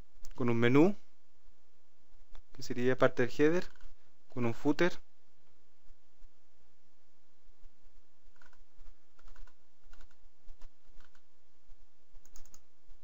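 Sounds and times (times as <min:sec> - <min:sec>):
steady low hum: 0:00.0 - 0:13.0
computer keys clicking: 0:08.4 - 0:08.6, 0:09.2 - 0:11.3, 0:12.2 - 0:12.7.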